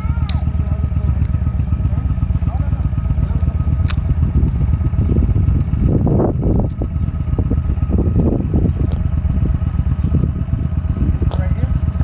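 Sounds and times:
motorcycle engine running lumpy: 0:00.0 - 0:12.0.

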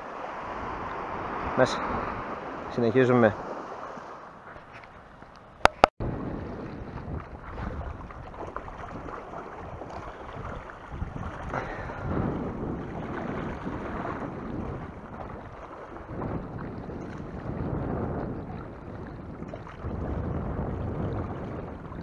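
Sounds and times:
wind buffeting microphone: 0:00.0 - 0:22.0
sea water washing against rocks: 0:06.0 - 0:22.0.

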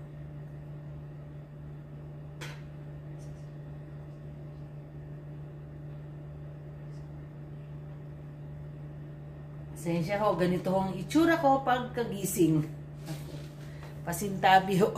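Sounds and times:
low room hum: 0:00.0 - 0:14.9.

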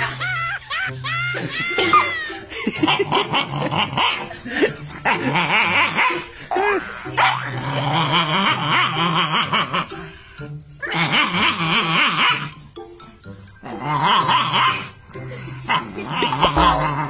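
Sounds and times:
dog barking and growling: 0:00.0 - 0:10.2, 0:10.8 - 0:12.6, 0:13.6 - 0:17.0.

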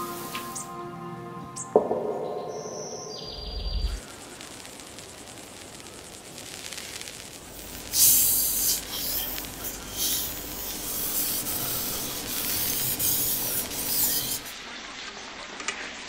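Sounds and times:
knife scraping on whetstone: 0:08.0 - 0:14.5.

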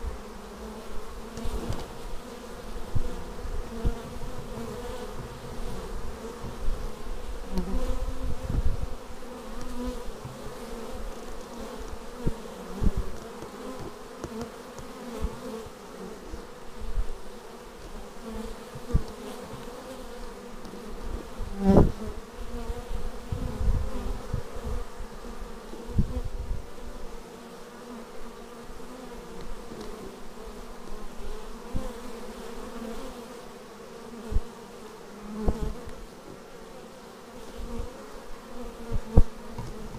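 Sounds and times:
bees buzzing: 0:00.0 - 0:39.9
single bee flying past: 0:00.0 - 0:39.9.

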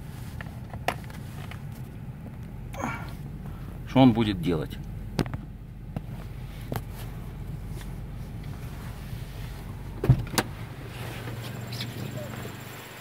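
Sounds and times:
low hum in car cabin: 0:00.0 - 0:13.0
car door unlatching clicks: 0:10.0 - 0:10.6.

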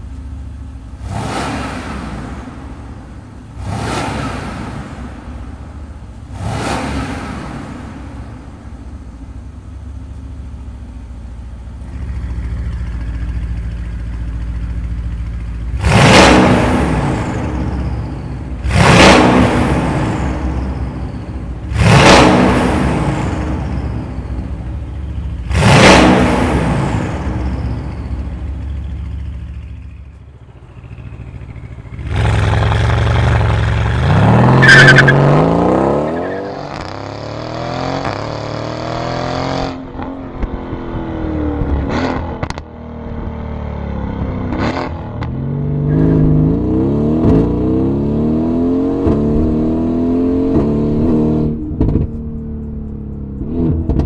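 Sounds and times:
car engine revving: 0:00.0 - 0:54.0
car accelerating through gears: 0:15.8 - 0:24.8, 0:25.4 - 0:28.5, 0:30.6 - 0:42.7.

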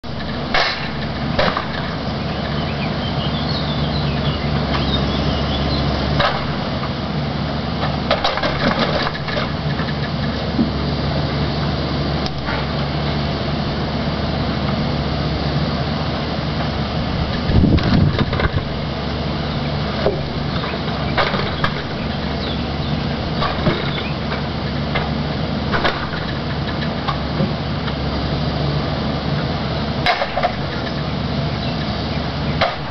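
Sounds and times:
diesel engine running: 0:00.0 - 0:32.9
knocks and clatters of logs: 0:00.2 - 0:02.6, 0:06.2 - 0:07.0, 0:07.8 - 0:10.8, 0:12.3 - 0:12.9, 0:16.6 - 0:18.7, 0:20.0 - 0:22.3, 0:23.4 - 0:28.0, 0:30.0 - 0:31.1, 0:32.6 - 0:32.9.

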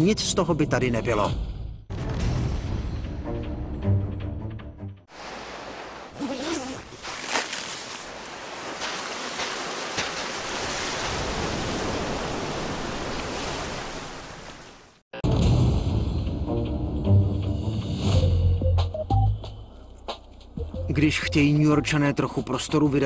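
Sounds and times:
ocean surf breaking on beach: 0:05.1 - 0:06.2, 0:06.9 - 0:15.0
sharp splashes: 0:05.1 - 0:15.0.

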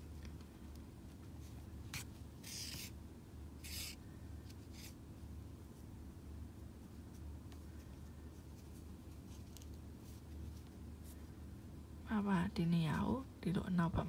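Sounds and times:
low steady hum: 0:00.0 - 0:14.0
yarn rubbing and rustling: 0:01.0 - 0:03.0, 0:06.6 - 0:11.3.

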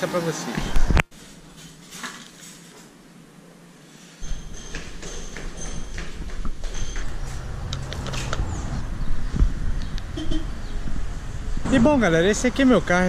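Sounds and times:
flip-flop footsteps on stairs: 0:04.2 - 0:08.0.

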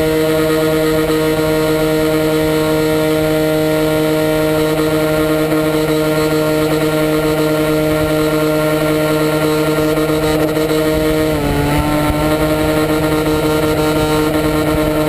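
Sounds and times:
model airplane motor droning: 0:00.0 - 0:15.0
wind buffeting microphone: 0:09.6 - 0:15.0.

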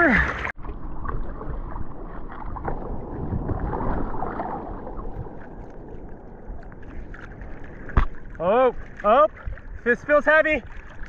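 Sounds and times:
water sloshing and splashing: 0:00.0 - 0:11.0
wind on microphone: 0:01.1 - 0:09.9.

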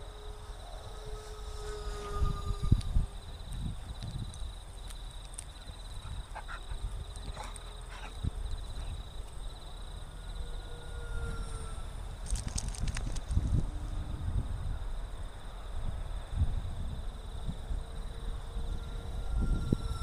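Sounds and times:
insect trill: 0:00.0 - 0:20.0
small electric motor whine: 0:00.0 - 0:20.0
wind buffeting microphone: 0:00.0 - 0:20.0.

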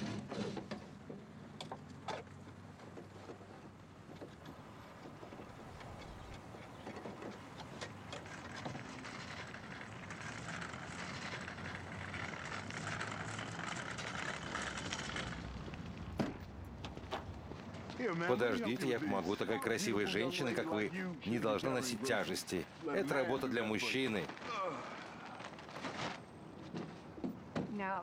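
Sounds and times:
car running noise: 0:00.0 - 0:20.6.

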